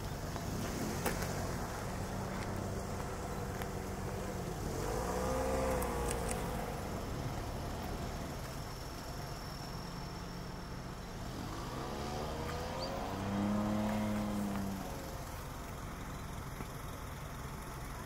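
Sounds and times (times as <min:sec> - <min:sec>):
distant engine droning: 0:00.0 - 0:18.0
engine pitch rising and falling: 0:00.6 - 0:08.5.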